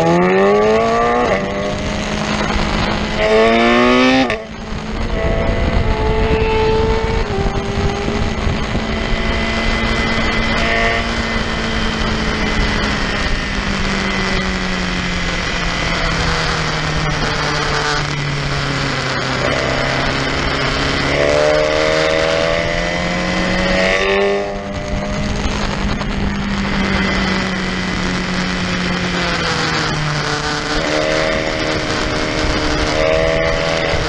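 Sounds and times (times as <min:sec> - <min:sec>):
motorcycle engine: 0:00.0 - 0:34.0
wind rush: 0:00.0 - 0:34.0.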